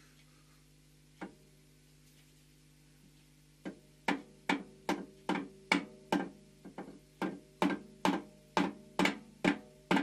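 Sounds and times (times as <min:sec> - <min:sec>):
hammer tapping metal vise: 0:03.6 - 0:10.0.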